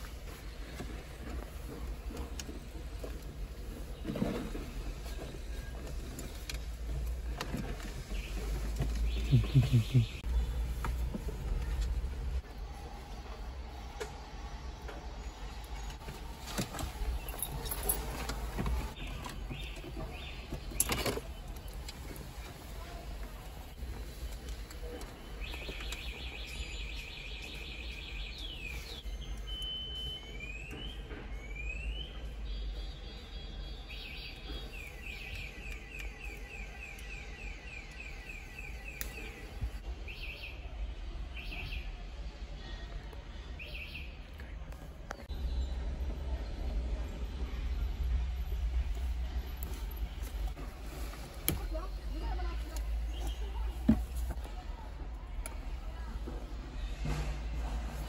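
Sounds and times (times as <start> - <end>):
cable handling clicks and rustles: 0.1 - 9.3, 15.6 - 26.3.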